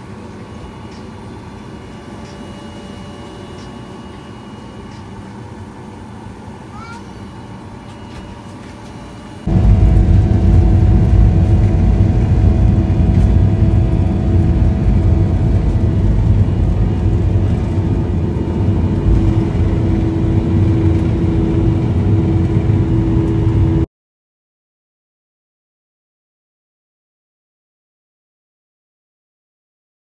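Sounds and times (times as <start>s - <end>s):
airliner engines at high power: 0.0s - 23.9s
wheels rumbling on runway: 9.5s - 23.9s.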